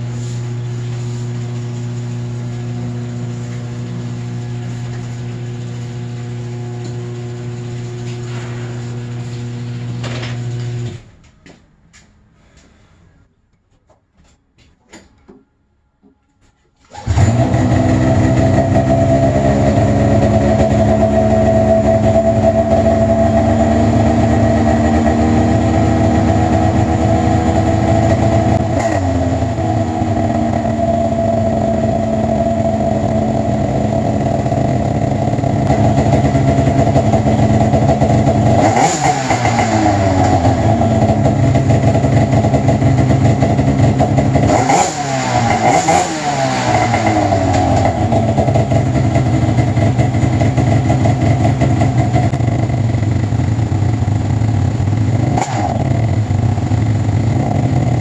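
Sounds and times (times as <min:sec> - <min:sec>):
engine throttle blips: 0:16.8 - 0:58.0
snowmobile engine running: 0:17.0 - 0:58.0.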